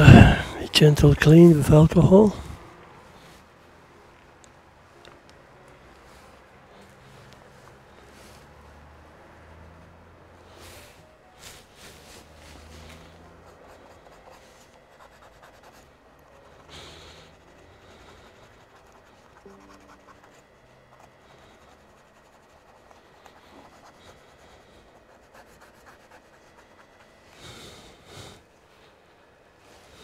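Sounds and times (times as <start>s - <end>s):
cotton swab scratching and rubbing: 11.5s - 27.2s.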